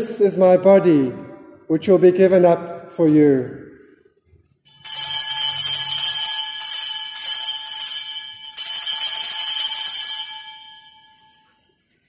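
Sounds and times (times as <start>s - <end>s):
small bells ringing: 4.7s - 11.7s.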